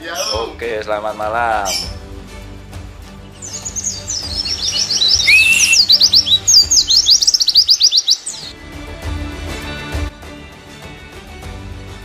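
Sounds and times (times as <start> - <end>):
bird twittering: 3.2 - 8.5
bird rising whistle: 3.4 - 8.5.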